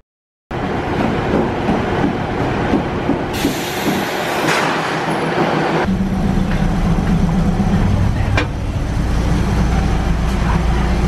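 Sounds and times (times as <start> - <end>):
diesel engine drone: 5.6 - 11.0.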